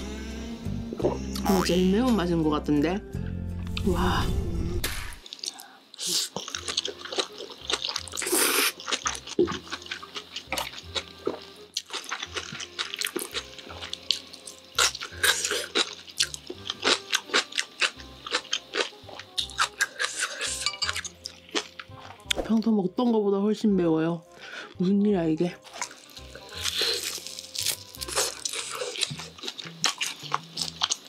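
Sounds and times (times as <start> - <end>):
soft music: 0.0 - 5.2, 6.4 - 31.0
slurping and chewing noodles: 5.2 - 22.4, 25.6 - 31.0.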